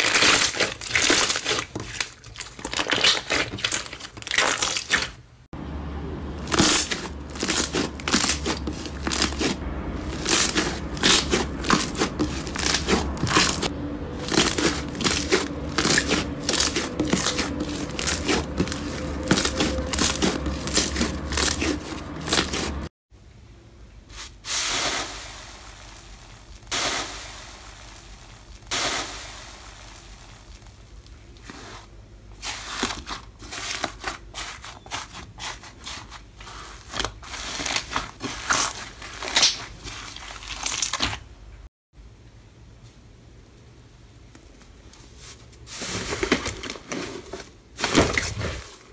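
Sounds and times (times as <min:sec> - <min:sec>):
slime popping and crackling: 0:00.0 - 0:05.2, 0:10.1 - 0:22.8, 0:37.4 - 0:41.2
slime squishes: 0:00.0 - 0:05.2, 0:06.4 - 0:22.9, 0:24.1 - 0:41.3
low hum: 0:05.6 - 0:23.8.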